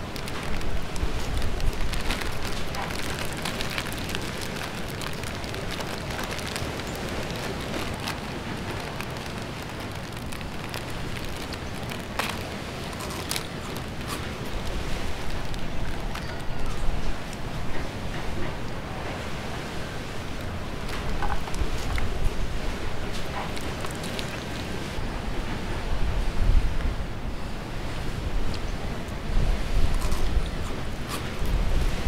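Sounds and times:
plastic snack bag crinkling and tearing: 0.0s - 17.0s, 20.8s - 22.2s, 23.0s - 24.8s.

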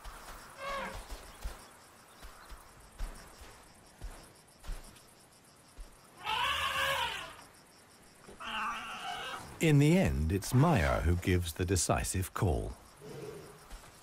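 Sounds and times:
elephant calf bleating call: 6.2s - 7.4s.

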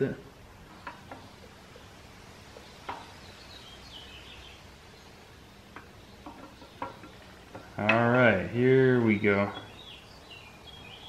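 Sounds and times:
faint bird chirps: 0.6s - 7.8s.

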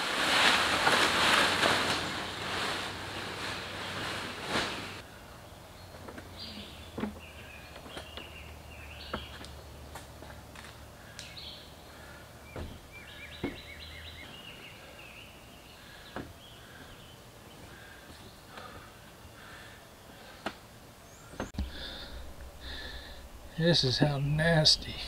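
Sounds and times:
birds chirping and singing: 11.0s - 20.3s.

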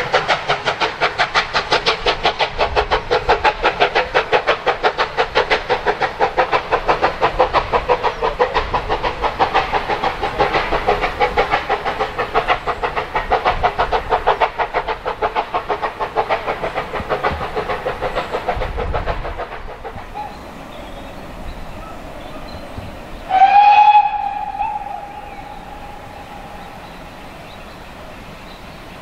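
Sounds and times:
steam locomotive exhaust beats: 0.0s - 29.0s
steam whistle: 23.3s - 26.4s.

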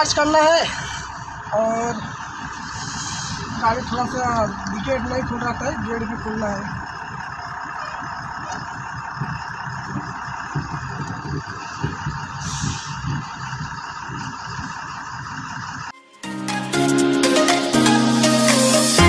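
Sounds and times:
diesel truck engine reversing: 0.0s - 19.0s
air hiss: 2.6s - 3.7s.

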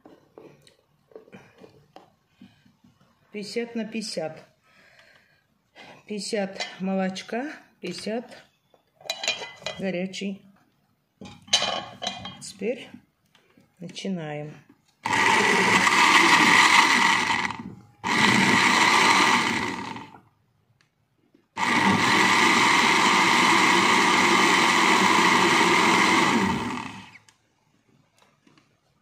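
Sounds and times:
blender running: 15.0s - 20.2s, 21.6s - 27.3s.

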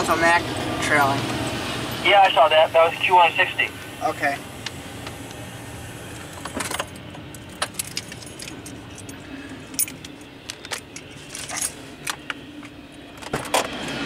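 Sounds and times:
steady low rumble: 0.0s - 14.0s
keys jangling: 6.6s - 12.2s.

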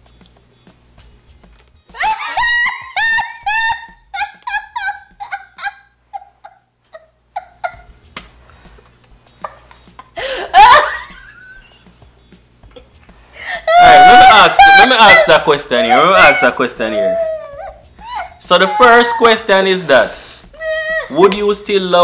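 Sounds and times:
high-pitched laughter: 2.0s - 7.9s, 10.3s - 11.6s, 13.7s - 19.4s.

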